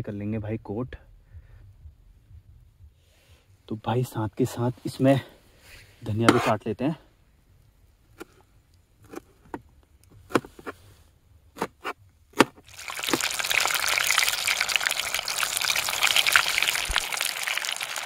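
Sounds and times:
chicken deep-frying in oil: 12.6s - 18.0s.

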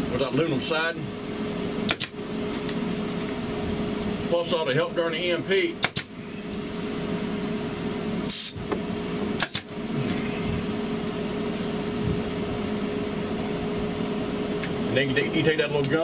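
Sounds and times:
steady machine hum: 0.0s - 16.0s
staple gun double clack: 1.9s - 2.1s, 5.8s - 6.1s, 9.4s - 9.7s
air hiss of staple gun: 8.3s - 8.6s.

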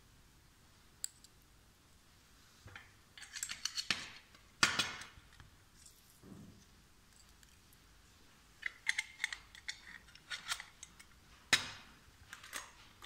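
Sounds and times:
metal brackets clicking: 3.2s - 5.2s, 8.6s - 12.8s.

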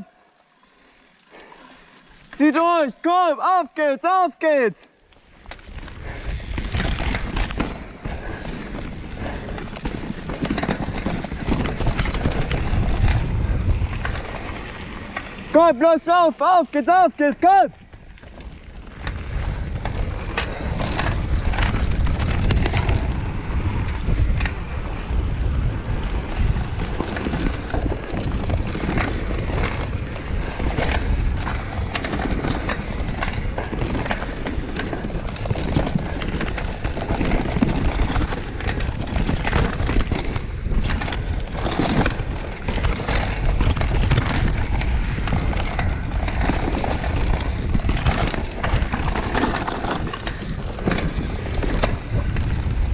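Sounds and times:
wind: 0.0s - 52.9s
bike tyres rumbling on dirt: 0.4s - 3.2s, 5.0s - 52.9s
bike clattering over bumps: 5.4s - 16.2s, 17.8s - 52.9s.

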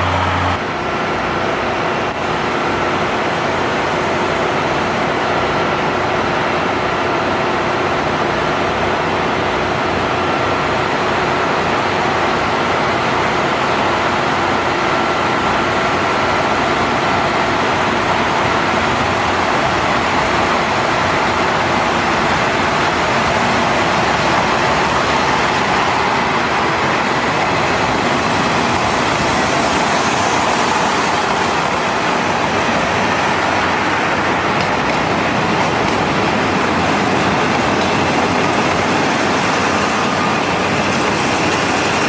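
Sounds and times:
diesel train running from inside: 0.0s - 42.0s.

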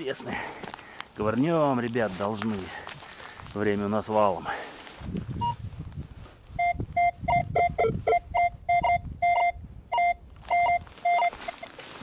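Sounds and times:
metal detector beeping: 5.4s - 5.6s, 6.6s - 11.8s.

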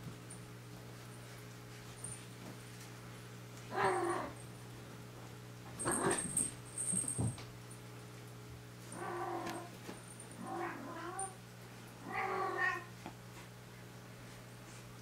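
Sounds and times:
cat meowing: 12.0s - 12.9s.

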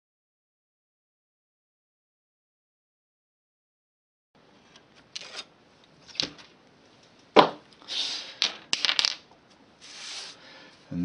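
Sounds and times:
paper scraping across bench: 9.8s - 10.4s.

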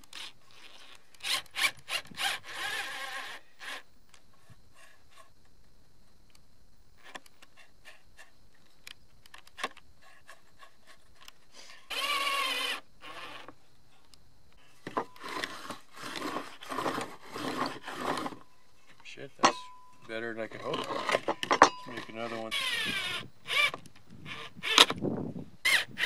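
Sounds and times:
drill driving screw into wood: 0.0s - 3.9s, 11.9s - 13.6s, 14.8s - 18.4s, 20.6s - 25.0s, 25.6s - 26.0s.

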